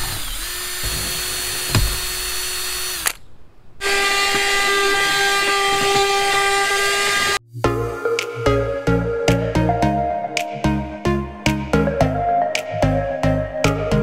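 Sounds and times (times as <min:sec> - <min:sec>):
cordless drill drilling: 0:00.0 - 0:03.2, 0:03.8 - 0:07.4.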